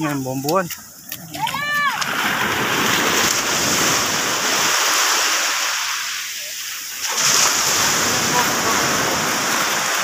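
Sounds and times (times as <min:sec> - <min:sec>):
water rushing over fish net: 0:01.6 - 0:10.0.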